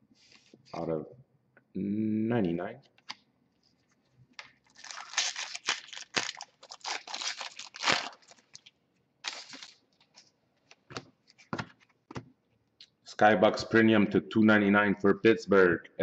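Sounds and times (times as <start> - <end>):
wrapper being torn open: 4.4 - 10.2.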